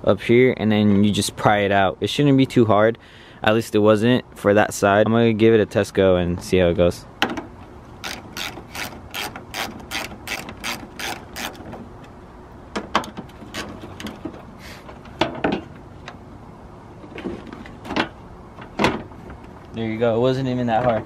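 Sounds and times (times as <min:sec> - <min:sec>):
socket ratchet clicking: 0:08.0 - 0:11.6.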